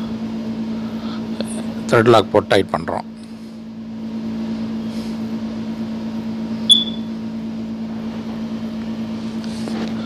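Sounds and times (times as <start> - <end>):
steady machine hum: 0.0 - 10.0.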